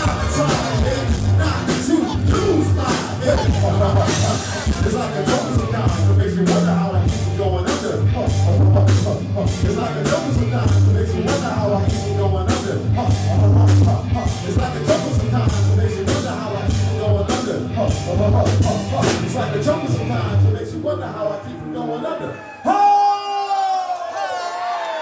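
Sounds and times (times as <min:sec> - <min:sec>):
drum kit beat: 0:00.0 - 0:19.5
heavy electric bass line: 0:00.0 - 0:20.8
voices rapping and singing: 0:00.0 - 0:22.2.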